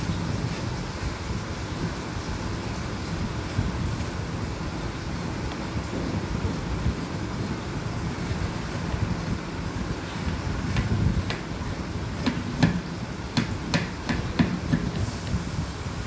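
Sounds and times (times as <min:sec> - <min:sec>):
knife scraping gourd skin: 0:00.0 - 0:15.0.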